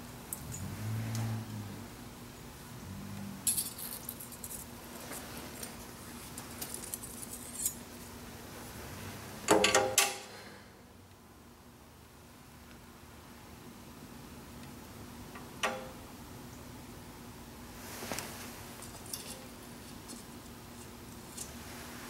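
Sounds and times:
faint steady hum: 0.0 - 22.0
metal on metal clatter: 9.5 - 10.3, 18.8 - 20.3
metal tools clicking on metal: 18.8 - 20.2.

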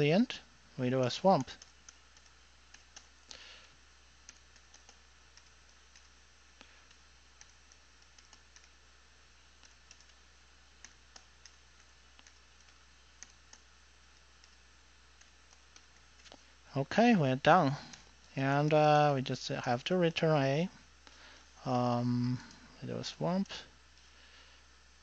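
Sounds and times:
typing on computer keyboard: 1.4 - 3.2, 4.2 - 6.2, 6.9 - 8.8, 9.6 - 10.2, 10.8 - 13.7.

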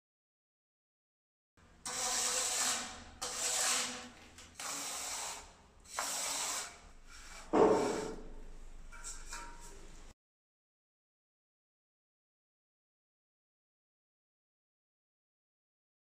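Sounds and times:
rasping strokes on concrete: 1.8 - 9.9
deep knock: 7.6 - 7.9.

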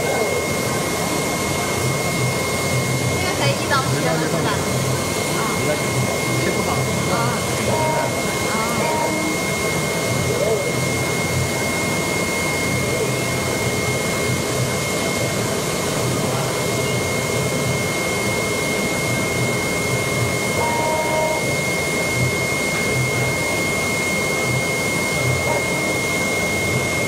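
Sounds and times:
thin high whine: 5.6 - 10.9, 20.4 - 27.0.

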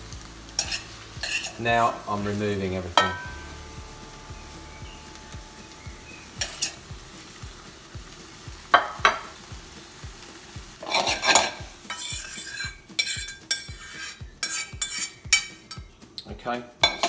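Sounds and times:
sizzling in a pan: 0.0 - 17.0
metal knocks and scrapes on pan: 0.6 - 1.9, 3.0 - 3.9, 6.4 - 6.8, 8.6 - 9.4, 10.2 - 16.0.

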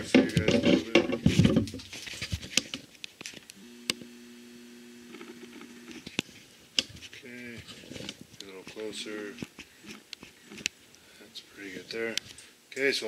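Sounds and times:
zoom motor hum: 3.6 - 6.1.

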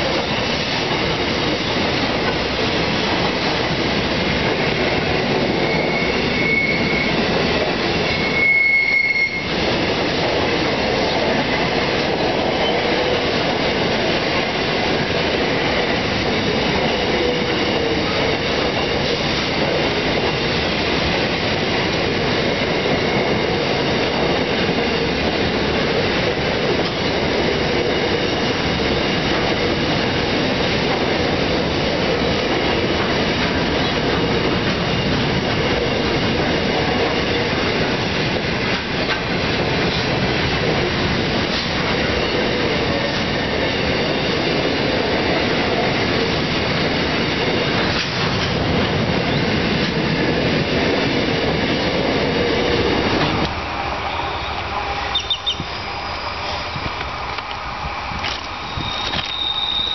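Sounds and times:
clickety-clack over rail joints: 0.0 - 53.6, 56.8 - 59.9
train wheels rumbling on rails: 0.0 - 59.9
faint wheel squeal: 5.5 - 7.2, 8.1 - 9.5, 54.1 - 56.6, 58.6 - 59.9.

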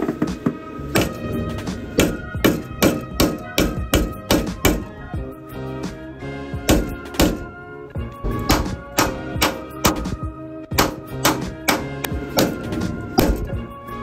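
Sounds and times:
instrumental hip-hop music: 0.0 - 14.0.

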